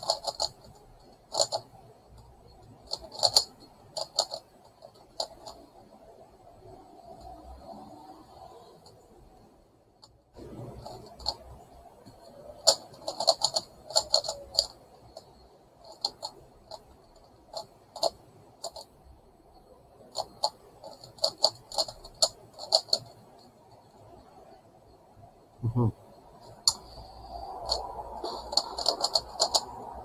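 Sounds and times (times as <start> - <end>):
sharp plastic clicks of puzzle: 0.0 - 6.2, 10.0 - 18.9, 20.0 - 23.4, 26.5 - 30.0.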